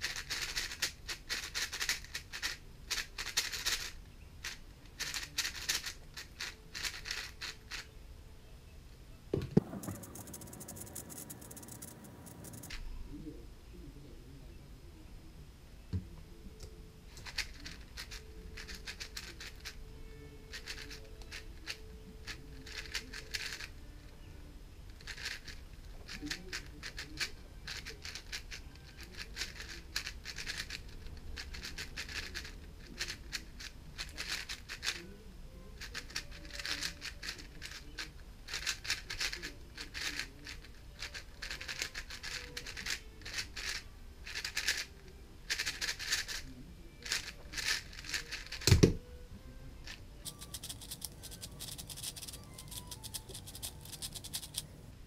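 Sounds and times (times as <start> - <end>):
plastic puzzle cube clicking: 0.0 - 7.9, 9.6 - 12.8, 17.1 - 19.8, 20.5 - 23.7, 25.0 - 35.0, 35.8 - 44.9, 45.5 - 46.4, 47.0 - 49.0, 49.9 - 54.7.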